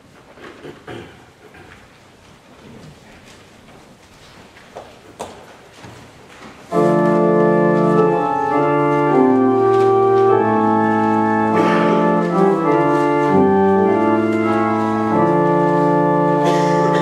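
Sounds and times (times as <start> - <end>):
church organ chords: 6.7 - 17.0.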